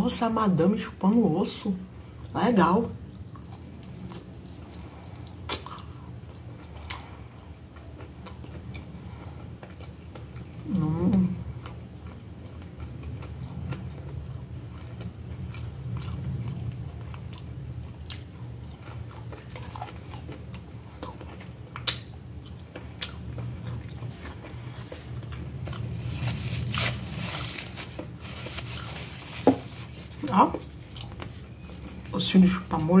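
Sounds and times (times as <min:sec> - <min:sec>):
person chewing food: 0:03.0 - 0:32.1
wet mouth clicks and smacks: 0:05.5 - 0:05.9, 0:21.8 - 0:22.1.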